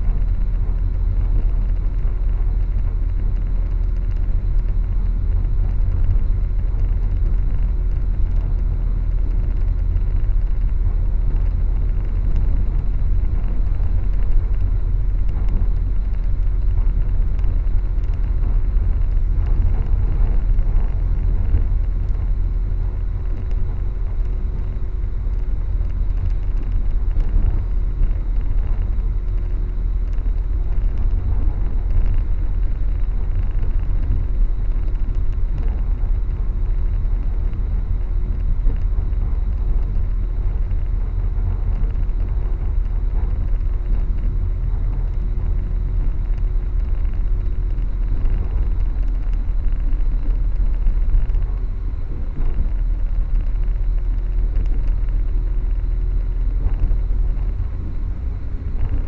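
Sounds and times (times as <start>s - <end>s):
faint steady hum: 0.0s - 59.0s
train running rumble: 0.0s - 59.0s.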